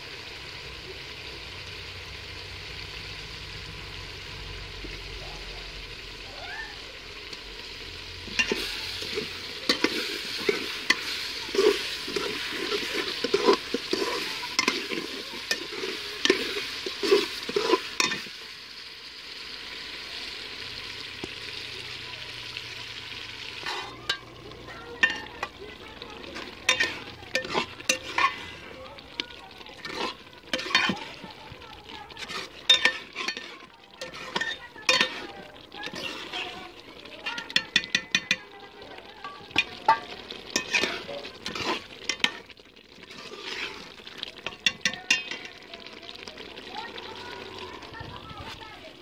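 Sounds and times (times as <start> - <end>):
vegetables sizzling: 0.0 - 49.0
ladle stirring and scraping pot: 8.2 - 18.4, 23.5 - 46.0
ladle clinking against pot: 8.3 - 18.3, 25.0 - 25.6, 26.4 - 28.5, 29.8 - 31.2, 32.2 - 36.6, 37.2 - 38.6, 39.2 - 42.5, 44.4 - 45.6.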